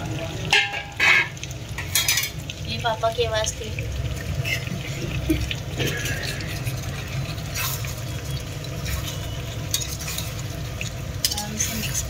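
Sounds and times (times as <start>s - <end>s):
food bubbling and sizzling in pan: 0.0s - 12.0s
metal ladle clinking on pan: 0.5s - 2.4s.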